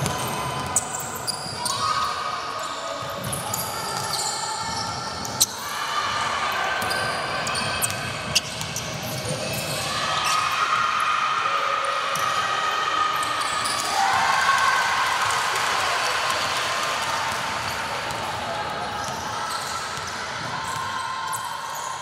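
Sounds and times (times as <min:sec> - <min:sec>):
basketball bouncing on court: 0:06.8 - 0:09.7.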